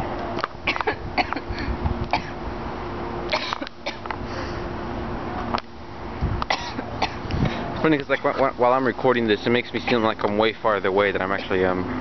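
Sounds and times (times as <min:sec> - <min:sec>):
woman coughing: 0:06.5 - 0:07.2.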